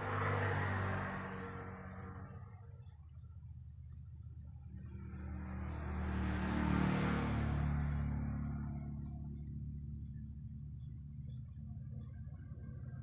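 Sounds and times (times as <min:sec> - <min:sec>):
vehicle passing by: 0:00.0 - 0:02.9, 0:04.6 - 0:10.1.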